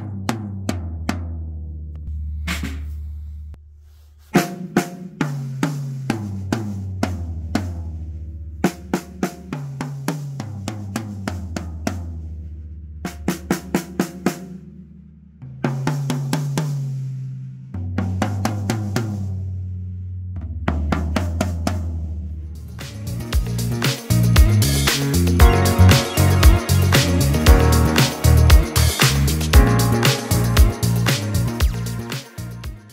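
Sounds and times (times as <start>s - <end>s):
bass drum: 0.0s - 3.8s, 15.4s - 32.9s
drum strokes in quick runs: 22.7s - 32.9s.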